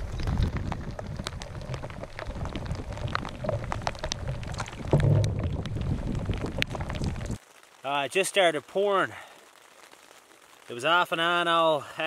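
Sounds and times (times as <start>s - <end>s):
low rumble: 0.0s - 7.4s
raindrops hitting: 0.0s - 12.0s
dull thump: 4.8s - 6.0s.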